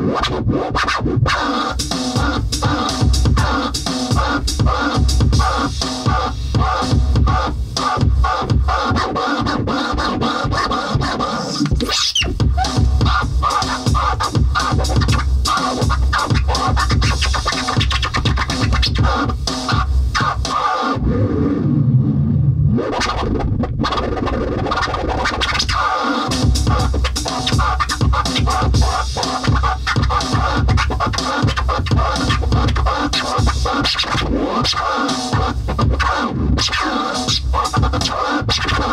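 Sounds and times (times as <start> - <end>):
electronic beat with heavy bass: 0.0 - 21.2, 22.7 - 38.9
turntable scratch sounds: 0.0 - 38.9.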